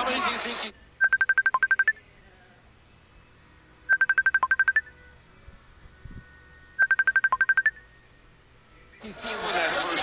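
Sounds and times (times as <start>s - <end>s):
phone ringtone beeps: 1.0s - 2.0s, 3.9s - 5.0s, 6.8s - 7.9s.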